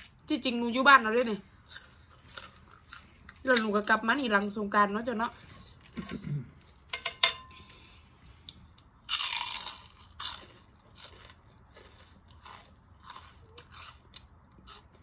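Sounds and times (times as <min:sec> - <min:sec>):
crunchy chewing of cucumber: 0:01.4 - 0:03.7, 0:08.5 - 0:15.0.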